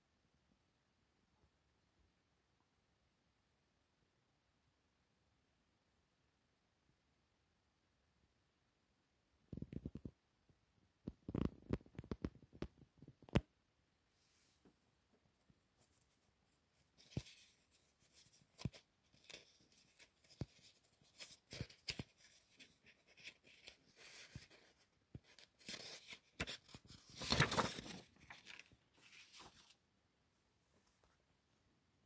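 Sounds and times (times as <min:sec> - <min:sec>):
paper rustling: 0:15.8 - 0:29.8.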